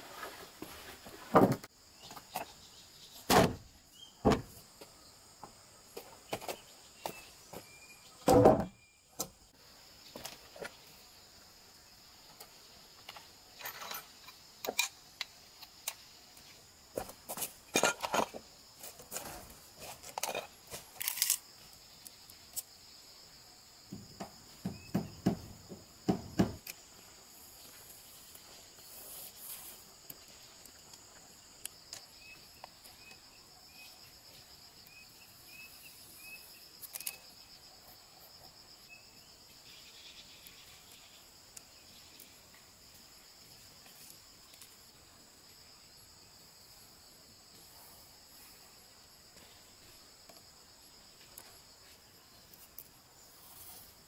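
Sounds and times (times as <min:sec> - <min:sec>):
high-pitched insect chorus: 0:00.1 - 0:54.0
sharp knocks: 0:23.9 - 0:26.6.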